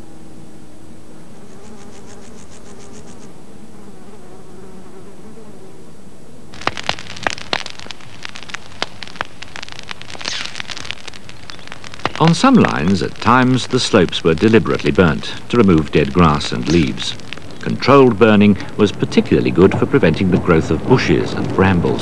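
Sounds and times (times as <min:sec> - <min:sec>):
insects buzzing: 0:00.0 - 0:22.0
burning grass crackling: 0:06.5 - 0:22.0
rapid high ticks: 0:06.6 - 0:19.2.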